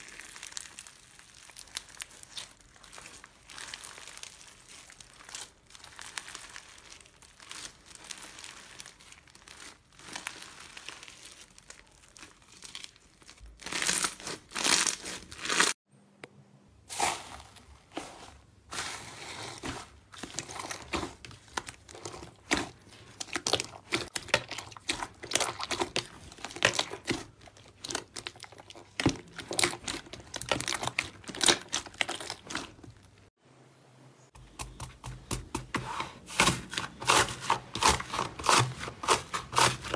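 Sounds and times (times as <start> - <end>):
slime crackling and popping: 0.0 - 15.8, 20.2 - 33.3.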